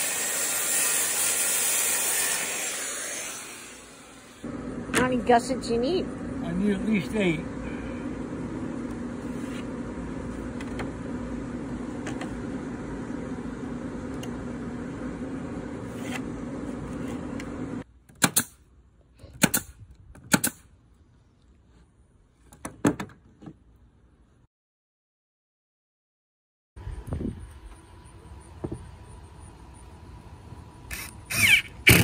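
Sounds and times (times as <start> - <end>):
machine hum: 2.8 - 17.8
nail gun shots into plywood: 18.1 - 18.6, 19.3 - 20.6.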